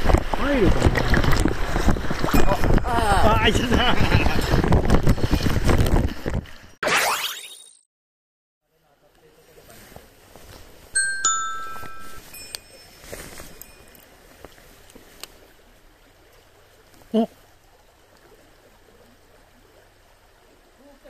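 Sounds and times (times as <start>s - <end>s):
faint stream flowing: 0.0s - 7.7s, 8.6s - 21.0s
bright bell-like chimes: 11.0s - 14.0s.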